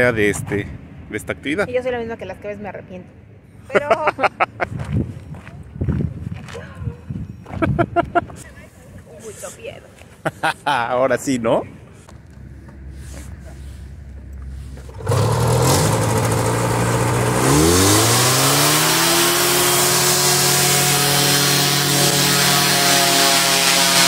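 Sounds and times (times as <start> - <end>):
propeller air rush: 14.6 - 24.0
paratrike engine: 14.9 - 24.0.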